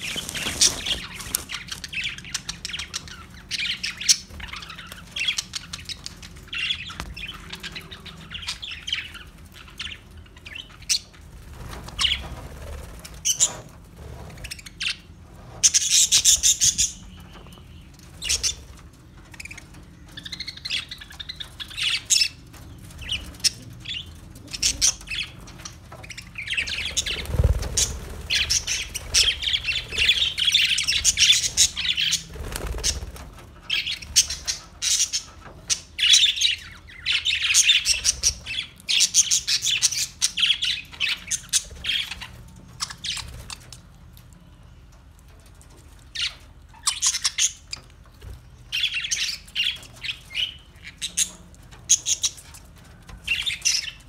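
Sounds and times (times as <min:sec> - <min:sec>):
budgerigars chattering: 0:23.0 - 0:33.1.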